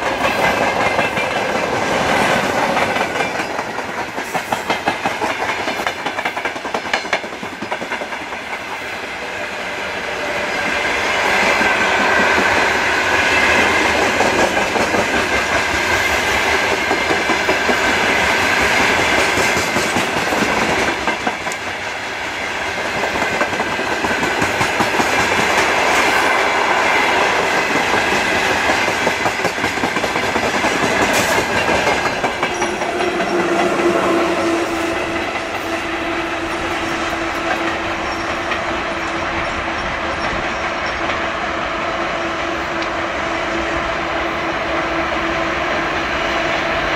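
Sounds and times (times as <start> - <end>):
continuous train rumble: 0.0 - 46.9
electric locomotive hum: 0.0 - 46.9
train wheels clattering over joints: 13.5 - 21.8, 27.3 - 34.0.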